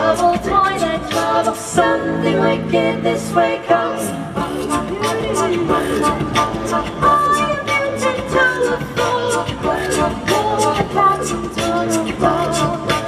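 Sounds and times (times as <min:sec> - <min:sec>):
a cappella choir singing: 0:00.0 - 0:13.0.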